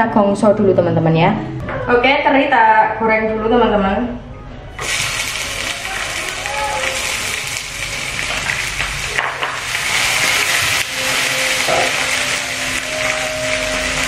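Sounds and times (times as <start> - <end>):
fish sizzling in hot oil: 4.8 - 14.0.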